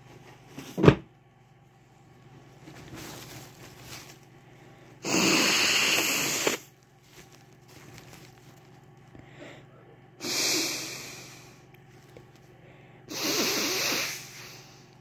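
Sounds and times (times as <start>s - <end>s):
person blowing nose: 5.0s - 6.7s, 10.2s - 11.4s, 13.1s - 14.8s.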